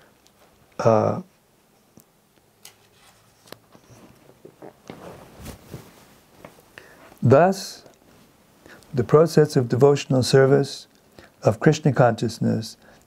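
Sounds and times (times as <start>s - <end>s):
book pages rustling and turning: 2.6s - 6.6s.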